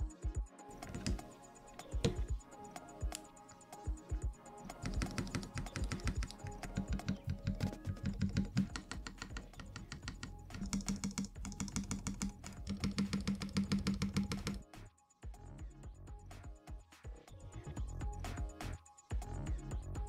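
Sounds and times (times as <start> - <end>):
keyboard keys clacking: 0.7 - 14.7.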